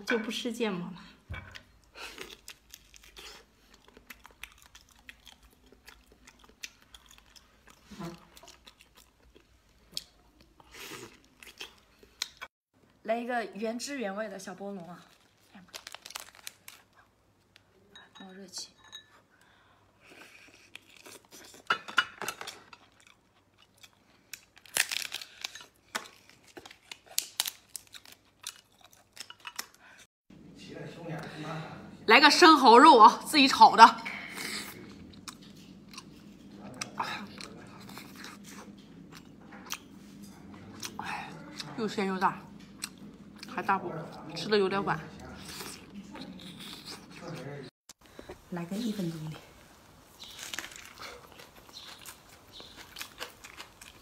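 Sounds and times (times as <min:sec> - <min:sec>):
person chewing food: 0:01.4 - 0:12.5, 0:20.0 - 0:30.1, 0:34.3 - 0:41.8, 0:42.5 - 0:44.3, 0:45.2 - 0:48.5, 0:49.6 - 0:54.0.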